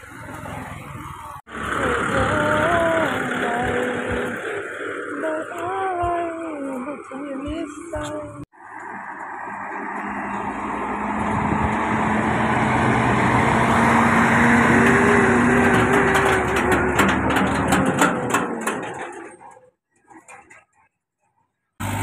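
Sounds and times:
diesel truck engine driving past: 0.0s - 6.0s, 8.6s - 17.7s
cargo body knocks and rattles: 15.4s - 19.5s.

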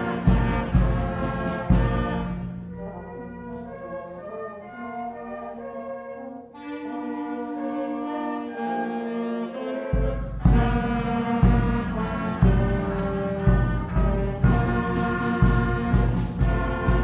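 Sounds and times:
concert band playing chords: 0.0s - 2.4s, 9.9s - 17.0s.

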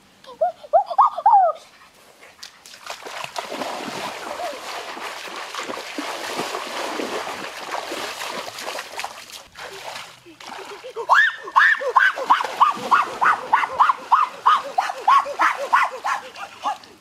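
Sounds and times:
water splashing from wading: 2.4s - 17.0s
high cries: 11.0s - 16.1s.

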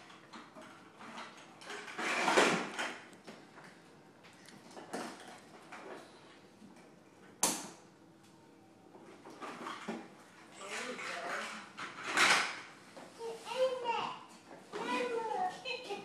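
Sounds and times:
plastic toy truck scraping and rattling: 0.0s - 3.0s, 9.3s - 9.9s, 10.6s - 12.6s.

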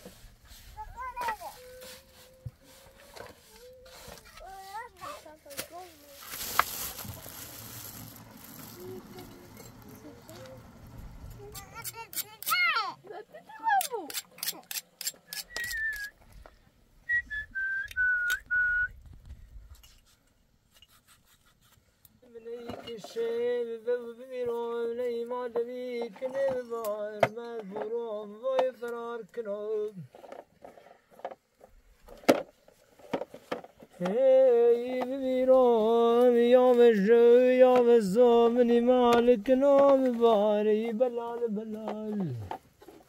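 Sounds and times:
short whistled notes: 15.3s - 16.2s
man singing slow melody: 22.3s - 30.0s, 34.0s - 42.5s.

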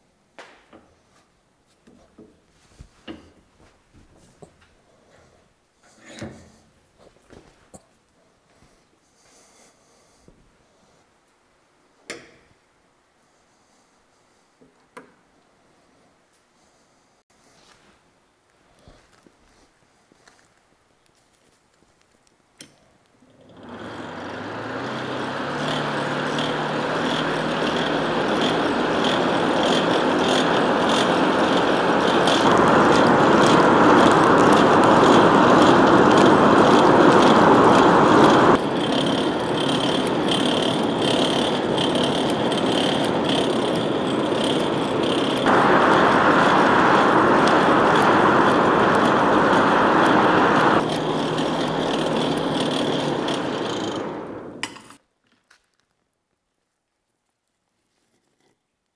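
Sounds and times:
charcoal fire crackling: 17.5s - 58.9s
forge blower humming: 23.2s - 55.0s
forced air rushing through fire: 23.6s - 54.6s.

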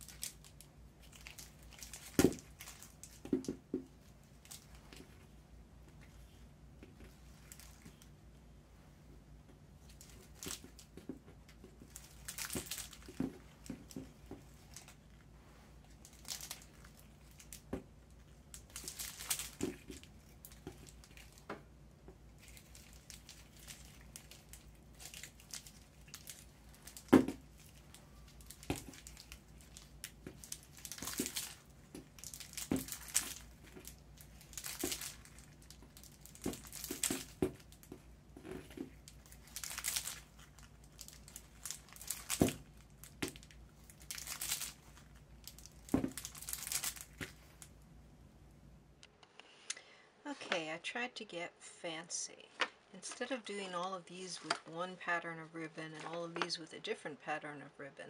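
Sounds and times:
foil wrapper crinkling: 0.0s - 3.2s, 11.8s - 14.0s, 15.9s - 21.5s, 22.4s - 47.7s.

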